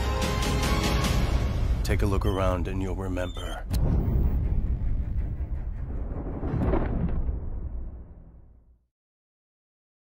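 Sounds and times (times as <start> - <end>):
deep low rumble: 3.6 - 8.7.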